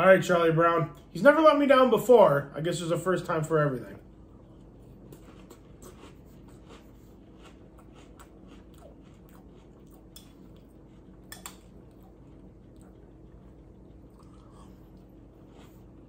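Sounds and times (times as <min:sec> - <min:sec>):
person chewing crunchy cereal: 0:04.0 - 0:16.0.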